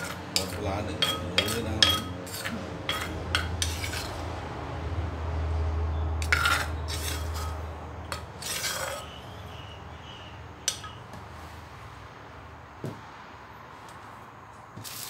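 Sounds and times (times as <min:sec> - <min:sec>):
spoon scraping clay mortar: 0:00.0 - 0:04.2, 0:06.2 - 0:11.0.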